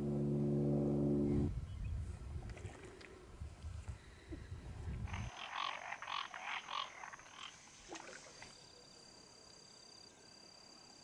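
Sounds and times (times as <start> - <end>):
low rumble: 0.0 - 5.3
frogs croaking: 5.0 - 11.0.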